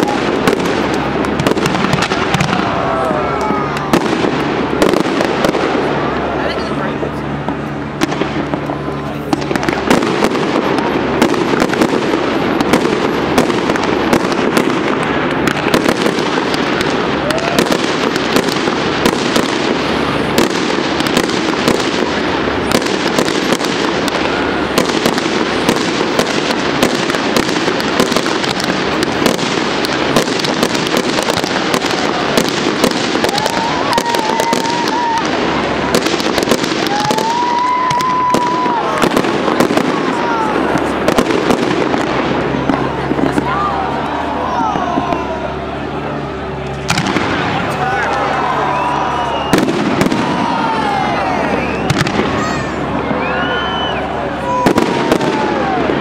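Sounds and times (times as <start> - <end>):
fireworks bangs and crackling: 0.0 - 56.0
fireworks whistling: 0.0 - 56.0.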